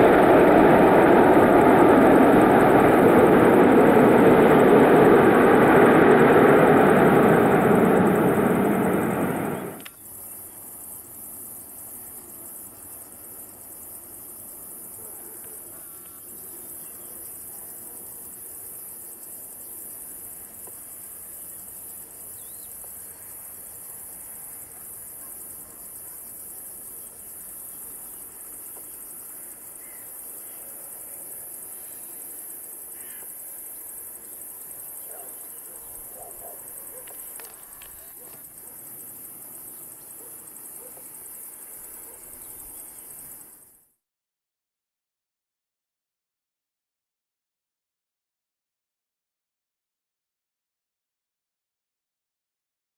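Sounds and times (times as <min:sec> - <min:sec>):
insects chirring: 0:00.0 - 0:43.9.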